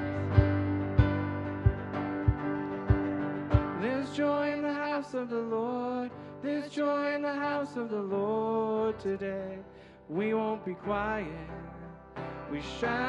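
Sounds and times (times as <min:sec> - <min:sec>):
upright bass: 0:00.0 - 0:04.3
acoustic guitar: 0:00.0 - 0:13.0
keyboard: 0:00.0 - 0:13.0.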